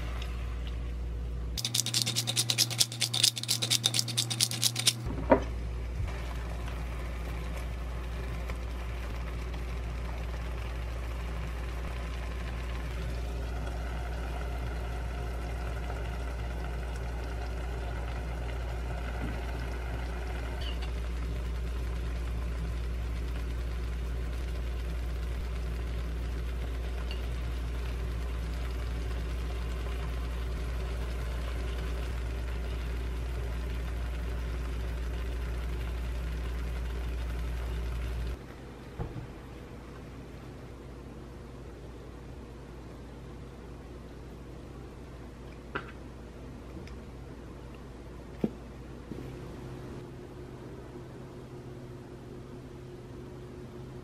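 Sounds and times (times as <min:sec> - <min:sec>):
kitchen appliance humming: 0:01.6 - 0:38.4.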